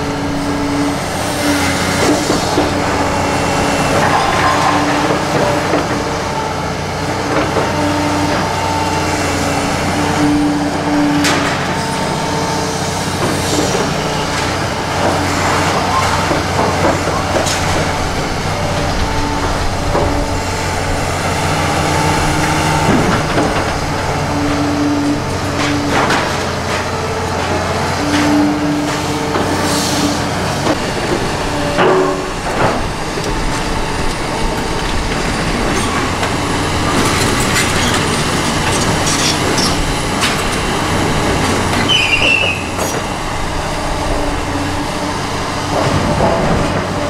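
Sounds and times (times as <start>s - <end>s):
diesel engine under load: 0.0s - 47.0s
hydraulic whine: 0.0s - 47.0s.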